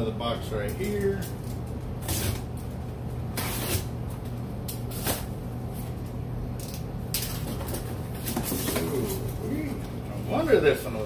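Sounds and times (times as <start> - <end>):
steady low hum: 0.0 - 11.0
packing tape and cardboard tearing: 0.7 - 5.4.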